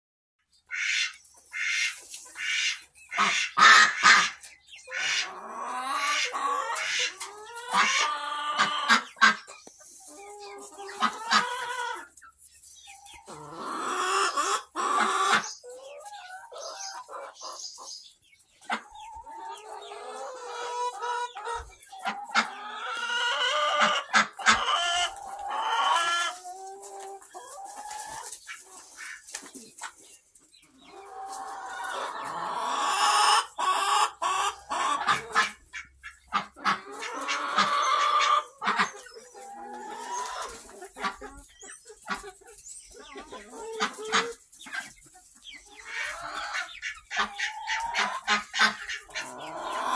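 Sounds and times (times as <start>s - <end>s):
chickens clucking: 0.4s - 49.9s.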